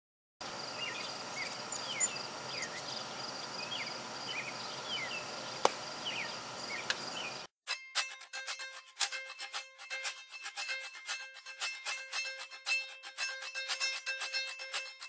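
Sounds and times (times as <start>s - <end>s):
high insect drone: 0.4s - 7.3s
small birds chirping: 0.6s - 7.5s.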